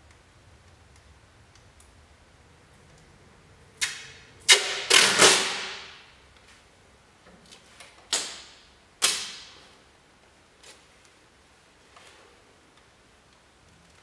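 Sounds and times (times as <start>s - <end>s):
masking tape ripping off roll: 3.8s - 6.0s.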